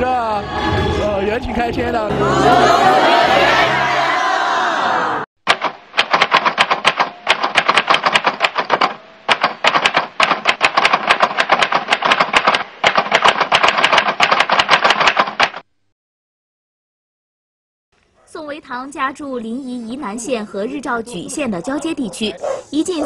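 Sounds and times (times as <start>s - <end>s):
typewriter key clatter: 5.5s - 15.6s.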